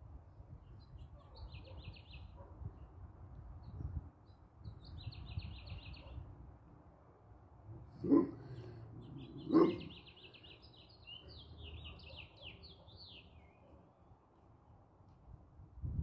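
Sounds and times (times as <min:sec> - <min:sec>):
dog barking: 0:01.2 - 0:02.6, 0:08.0 - 0:10.0, 0:11.8 - 0:13.0
songbird chirping trills: 0:08.0 - 0:13.8.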